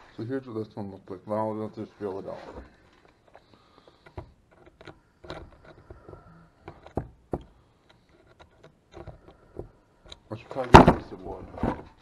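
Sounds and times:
metal scraping on wood: 1.5s - 9.6s.

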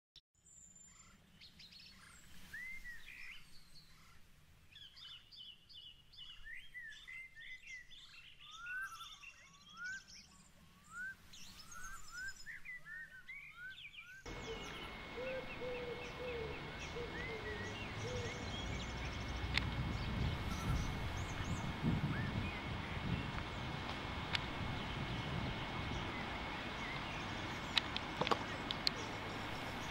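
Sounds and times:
small birds singing and chirping: 0.4s - 29.9s
low outdoor rumble: 14.3s - 29.9s.

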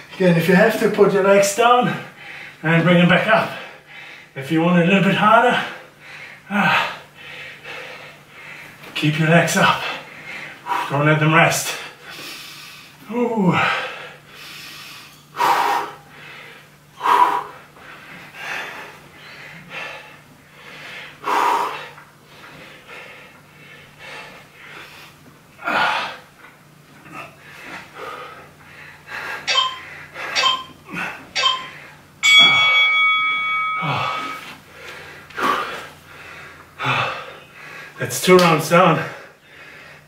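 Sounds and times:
man breathing hard: 1.8s - 2.6s, 3.5s - 4.4s, 5.5s - 8.8s, 9.8s - 11.0s, 11.6s - 26.4s, 27.0s - 38.0s, 39.0s - 40.0s
interval timer beeps: 29.5s - 30.8s, 31.4s - 34.4s.

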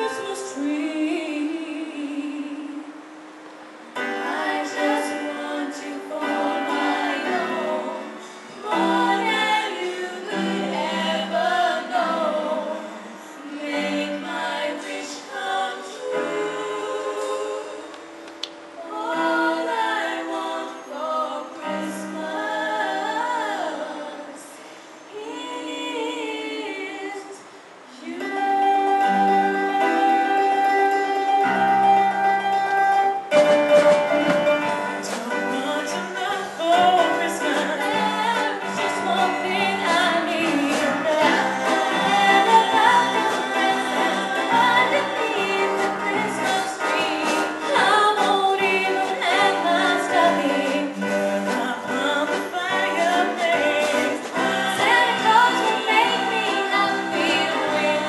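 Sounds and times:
women singing together: 0.0s - 3.0s, 4.0s - 58.0s
instrumental accompaniment: 28.1s - 58.0s.

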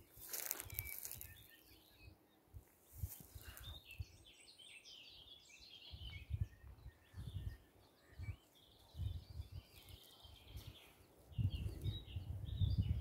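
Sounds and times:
birds chirping: 0.2s - 13.0s
wind buffeting microphone: 5.9s - 13.0s.

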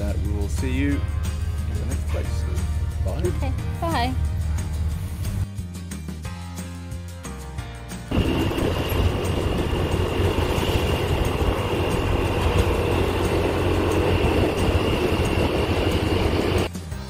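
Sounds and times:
scooter engine hum: 8.1s - 16.7s
thin high whine: 8.1s - 16.7s
wind and road noise: 8.1s - 16.7s.

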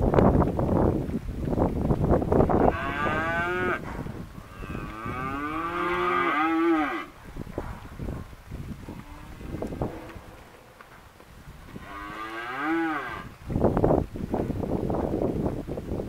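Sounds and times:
hooves trampling on dry dirt: 0.0s - 16.0s
cattle mooing: 2.6s - 3.8s, 4.4s - 7.1s, 11.8s - 13.3s.

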